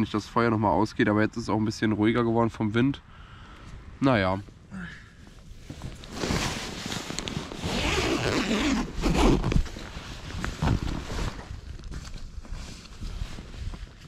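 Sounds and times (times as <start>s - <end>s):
rustling and scraping handling: 5.5s - 14.0s.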